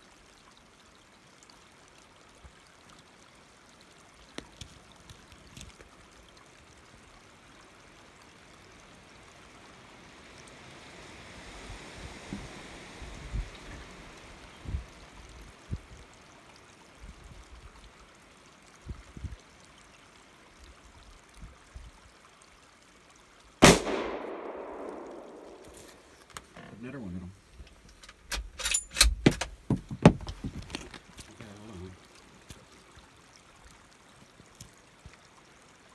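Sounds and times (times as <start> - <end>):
faint hiss: 0.8 - 28.7, 31.0 - 35.9
rifle gunshot with echo: 23.6 - 26.0.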